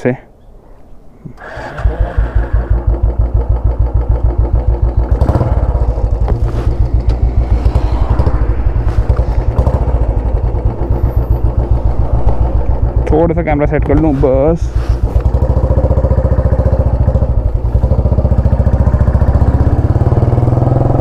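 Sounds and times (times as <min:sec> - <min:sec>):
motorcycle engine idling: 0:02.3 - 0:07.0, 0:14.8 - 0:19.8.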